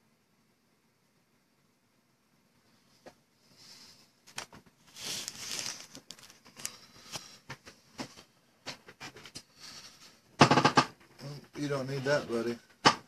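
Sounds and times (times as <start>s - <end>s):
rustling and crinkling: 2.6s - 12.8s.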